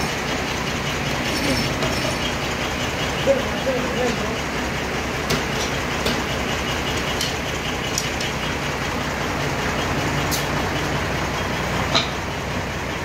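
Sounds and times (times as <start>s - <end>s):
band sawmill running: 0.0s - 13.0s.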